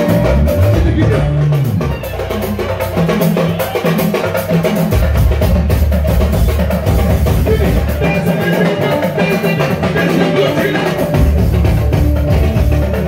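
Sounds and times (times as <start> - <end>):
drum kit beat: 0.0 - 13.0
electric bass: 0.0 - 13.0
guitar: 0.0 - 13.0
keyboards: 0.0 - 13.0.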